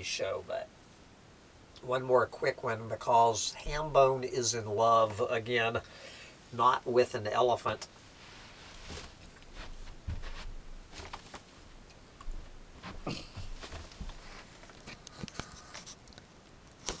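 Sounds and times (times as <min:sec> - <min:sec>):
rustling: 0:07.8 - 0:17.0
knocks and thumps: 0:09.6 - 0:11.4, 0:12.2 - 0:14.5.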